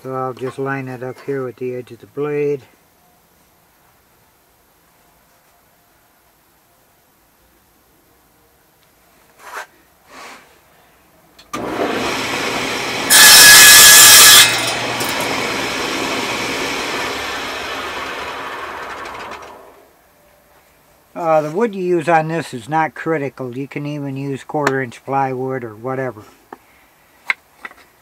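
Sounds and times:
quiet handling sounds: 0:03.0 - 0:06.6
saw blade cutting wood: 0:11.6 - 0:19.6
table saw motor running: 0:11.6 - 0:19.8.

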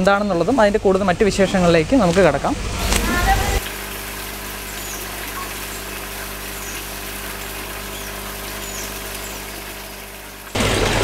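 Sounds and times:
steady machine hum: 0:00.0 - 0:11.0.

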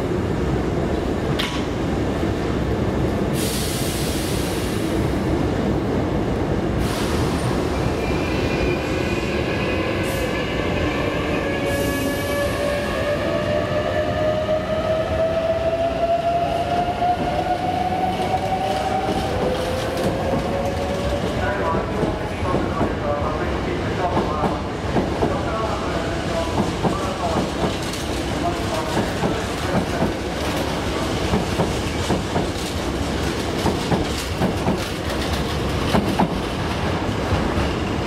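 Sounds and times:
train running rumble: 0:24.0 - 0:38.0.

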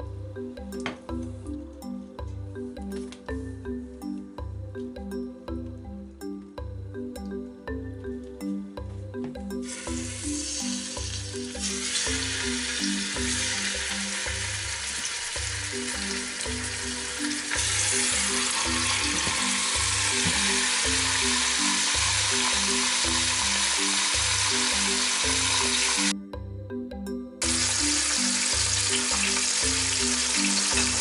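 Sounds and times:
music with low rhythm: 0:00.0 - 0:31.0
chicken sizzling in hot oil: 0:09.7 - 0:26.1, 0:27.4 - 0:31.0.

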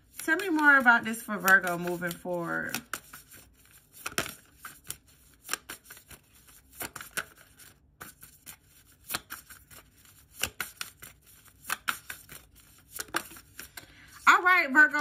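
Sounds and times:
cards being shuffled: 0:00.0 - 0:14.2.

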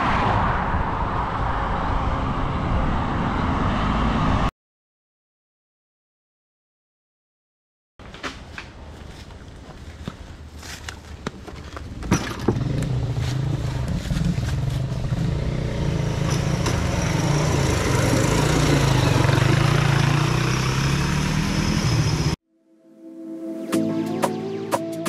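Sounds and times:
small motorcycle engine running: 0:12.5 - 0:22.4.

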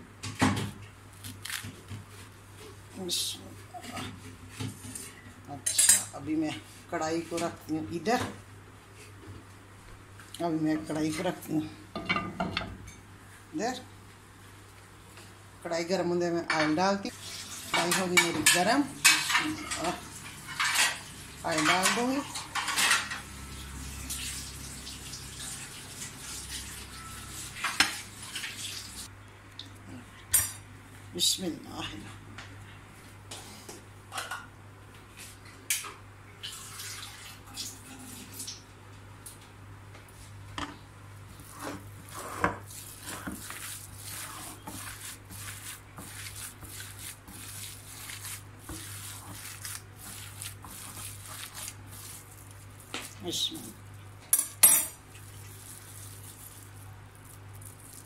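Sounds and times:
hands kneading wet meat mixture: 0:21.4 - 0:22.2, 0:41.2 - 0:54.2, 0:55.0 - 0:58.0.

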